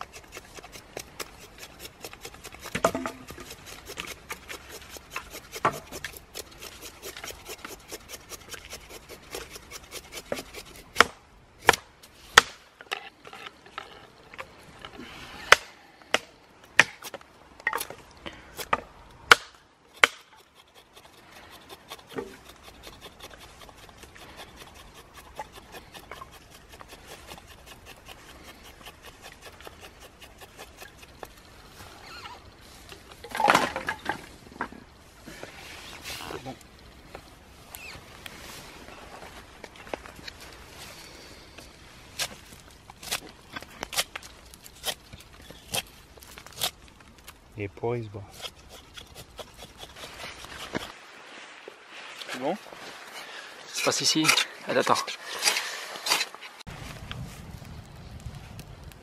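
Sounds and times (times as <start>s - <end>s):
knife scraping wood: 0.0s - 14.9s, 19.9s - 32.5s, 37.7s - 47.4s, 48.2s - 51.0s, 52.1s - 56.7s.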